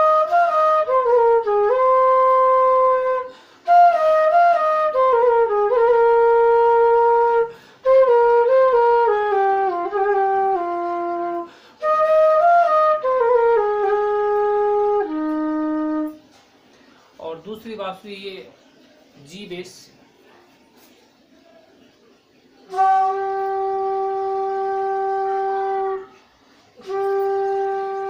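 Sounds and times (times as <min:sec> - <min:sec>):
bamboo flute playing: 0:00.0 - 0:16.3, 0:22.6 - 0:28.0.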